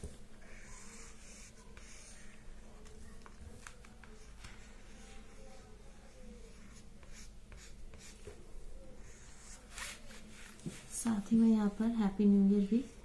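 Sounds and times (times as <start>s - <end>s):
marker scratching on paper: 0.5s - 2.4s, 6.5s - 8.4s, 9.0s - 10.0s.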